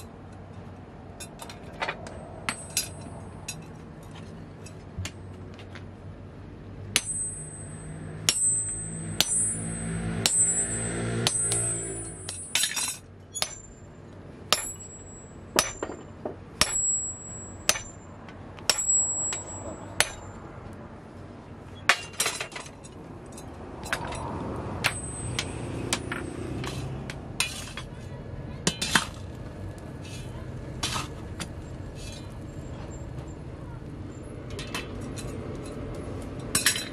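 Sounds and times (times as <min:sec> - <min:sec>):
hammer blows ringing on steel: 0:06.9 - 0:12.7, 0:14.5 - 0:16.0, 0:16.6 - 0:18.0, 0:18.7 - 0:20.4.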